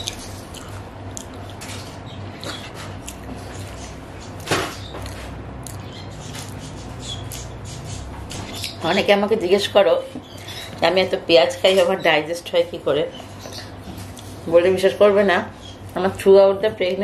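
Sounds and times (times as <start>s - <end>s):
chewing with mouth closed: 0.0s - 7.5s
low steady hum: 0.0s - 17.0s.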